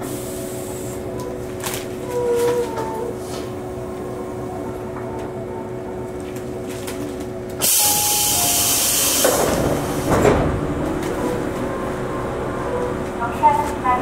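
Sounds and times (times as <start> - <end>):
train electrical hum: 0.0 - 14.0
sliding doors bumping: 9.0 - 11.8.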